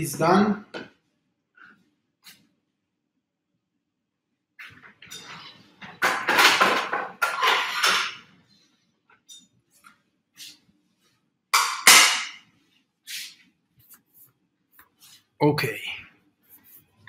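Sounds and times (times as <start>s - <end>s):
dishes and utensils clattering: 4.6s - 8.3s.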